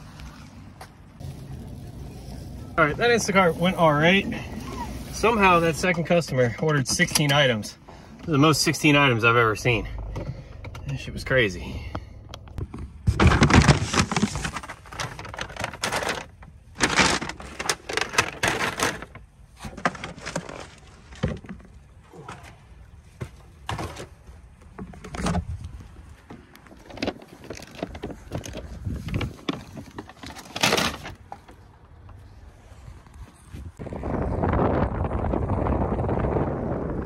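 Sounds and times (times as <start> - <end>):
paper bags rustling and crinkling: 13.0 - 22.4, 26.0 - 31.4.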